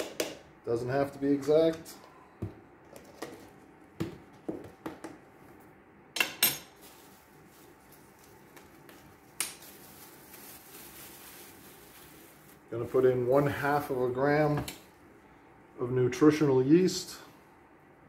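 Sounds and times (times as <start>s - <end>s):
faint steady hiss: 6.6s - 18.0s.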